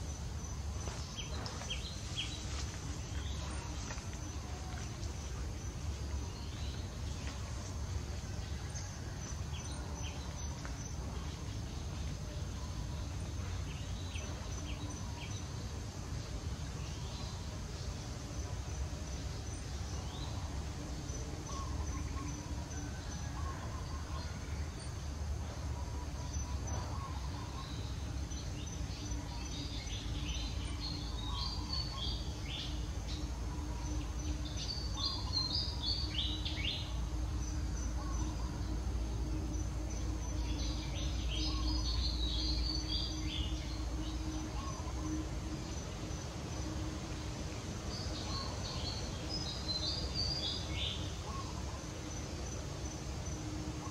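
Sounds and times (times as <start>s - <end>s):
birds chirping: 0.0s - 53.9s
faint insect-like whine: 0.0s - 53.9s
steady low rumble: 0.0s - 53.9s.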